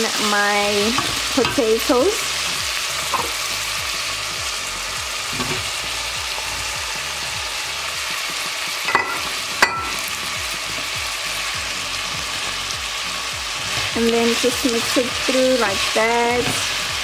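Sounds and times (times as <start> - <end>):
vegetables sizzling in hot oil: 0.0 - 17.0
sharp knocks against metal pot: 8.9 - 10.0.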